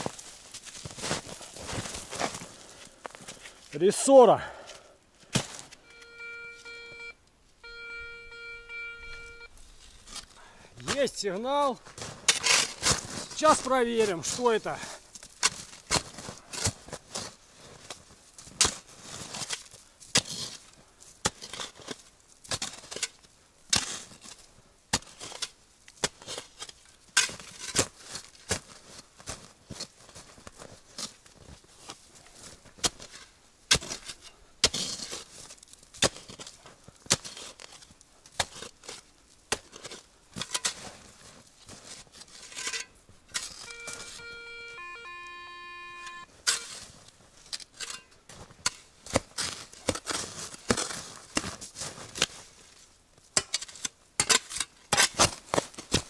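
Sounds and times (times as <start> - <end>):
spade chopping into snow and soil: 5.3 - 5.7, 12.0 - 14.6, 15.3 - 17.3, 18.5 - 20.6, 21.2 - 28.6, 32.8 - 41.0, 47.6 - 52.4, 53.4 - 56.0
metal detector tone: 5.8 - 9.6, 43.6 - 46.8.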